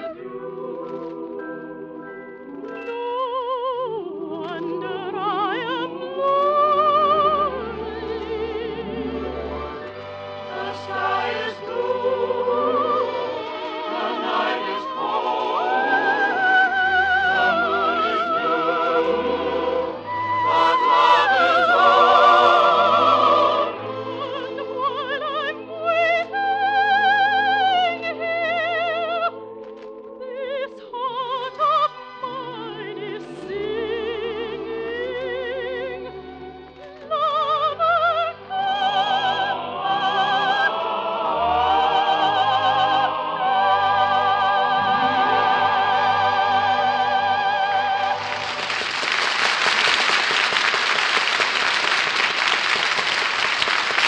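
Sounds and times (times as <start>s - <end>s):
operatic singing with vibrato: 0.0s - 49.0s
orchestra playing: 4.4s - 28.4s, 37.7s - 54.0s.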